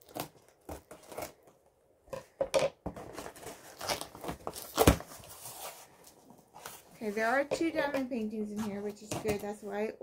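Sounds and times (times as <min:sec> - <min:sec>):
packaging tearing and rustling: 0:00.0 - 0:01.6, 0:03.0 - 0:06.9.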